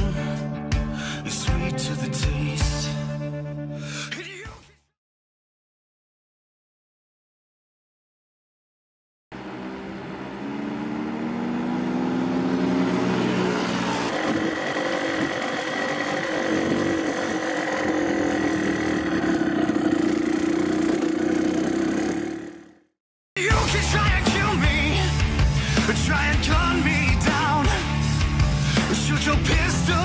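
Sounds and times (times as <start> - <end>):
motorcycle engine revving: 9.3 - 23.0.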